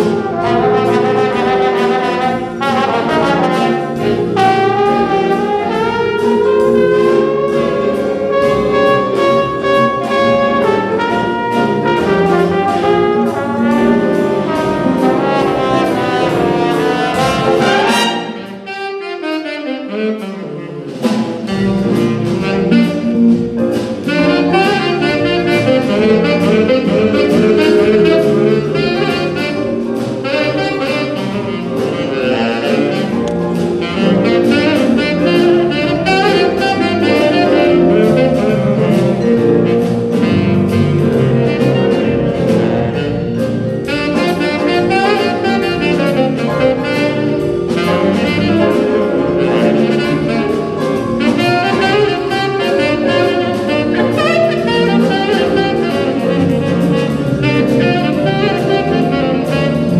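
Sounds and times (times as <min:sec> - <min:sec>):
cymbal beat: 0:00.0 - 0:18.7
jazz band playing blues: 0:00.0 - 0:59.9
saxophones: 0:00.0 - 0:59.9.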